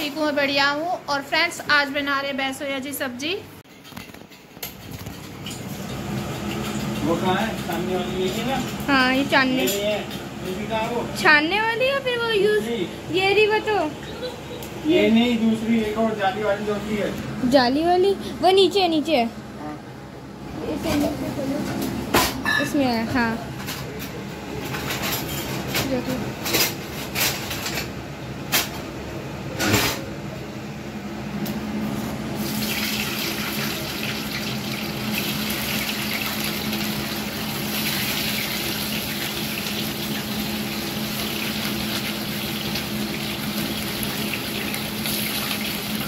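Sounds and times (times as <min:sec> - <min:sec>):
food sizzling in a pan: 0:32.4 - 0:46.0.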